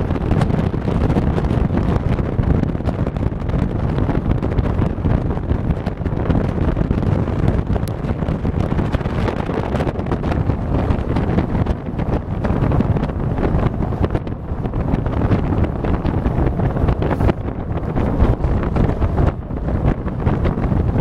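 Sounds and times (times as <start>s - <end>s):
vehicle engine rumble: 0.0s - 21.0s
wind buffeting microphone: 0.0s - 21.0s.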